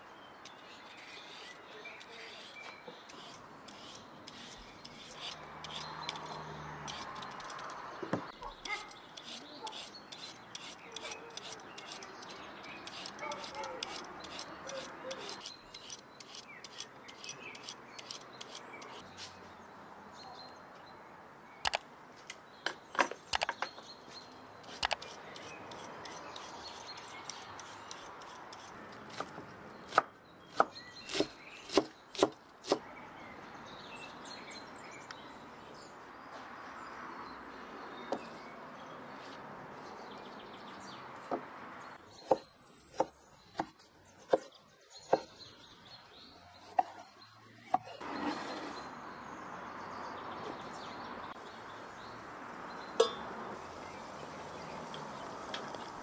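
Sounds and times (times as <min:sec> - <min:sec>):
knife chopping on wooden board: 0:29.1 - 0:32.8.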